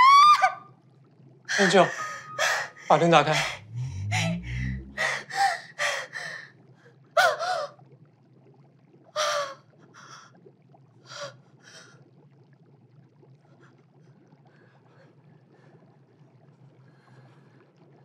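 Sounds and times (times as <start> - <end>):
woman whimpering: 1.5 - 6.4, 7.2 - 7.7
woman gasping breaths: 1.5 - 6.5.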